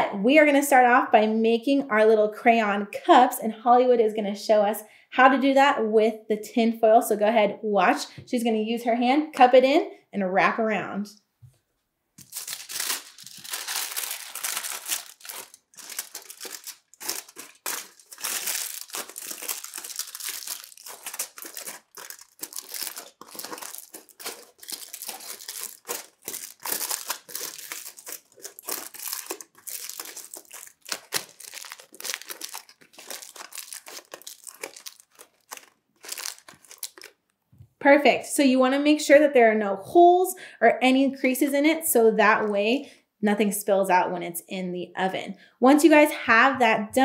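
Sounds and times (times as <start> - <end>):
aluminium foil crinkling: 12.2 - 37.2.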